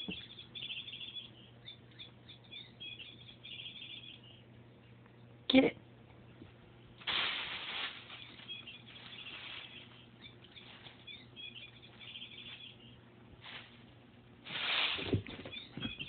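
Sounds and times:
toy chirping: 0.0s - 4.5s, 8.1s - 13.0s, 15.5s - 16.0s
rustling: 7.0s - 16.0s.

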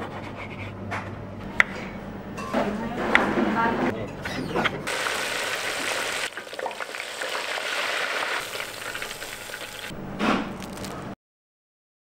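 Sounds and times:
oil bubbling and sizzling: 4.9s - 11.1s.

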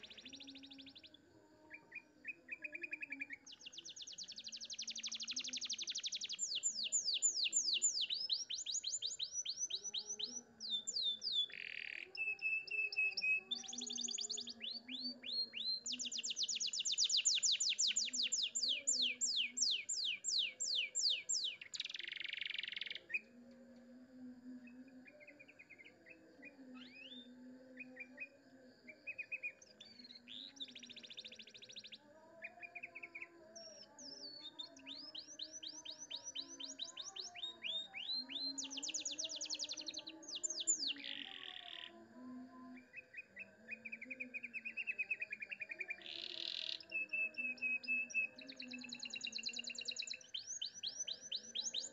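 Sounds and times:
canary singing trills: 0.0s - 23.4s, 29.1s - 41.9s, 42.9s - 51.9s
bird chirps: 1.9s - 23.2s.

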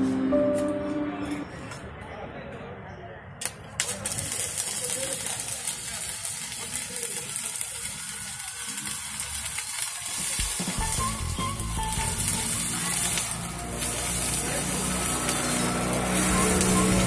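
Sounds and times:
welding arc crackling: 3.4s - 17.0s.

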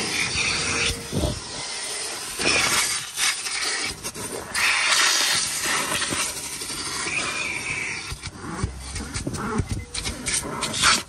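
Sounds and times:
vacuum cleaner on upholstery: 0.0s - 3.2s.

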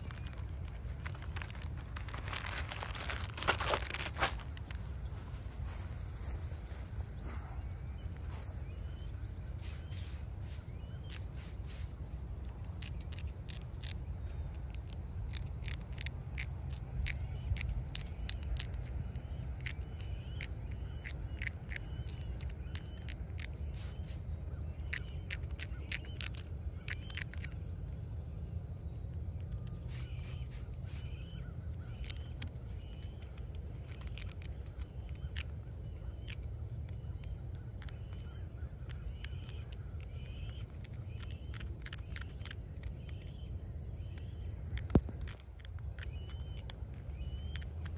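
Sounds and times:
low rumble: 0.0s - 19.5s
birds calling: 0.0s - 47.9s.

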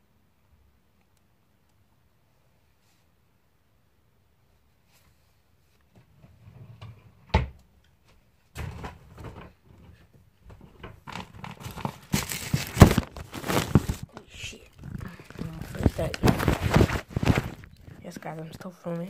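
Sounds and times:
rustling and bumps of bedding: 8.1s - 19.0s.

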